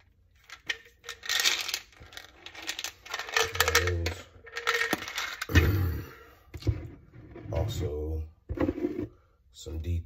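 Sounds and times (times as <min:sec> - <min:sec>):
pills rattling in bottle: 0:00.4 - 0:05.6.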